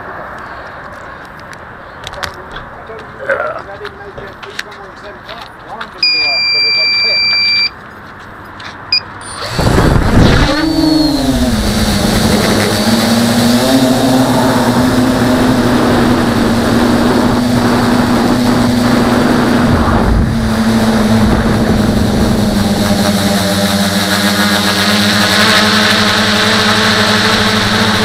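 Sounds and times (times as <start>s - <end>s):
drone motors and propellers buzzing: 8.9s - 28.0s.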